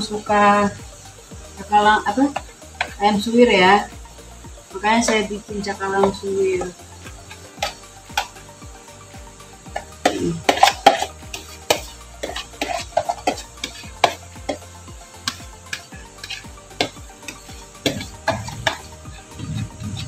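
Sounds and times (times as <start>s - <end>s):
metal spoon scraping and clinking: 9.8s - 14.6s, 15.3s - 20.0s.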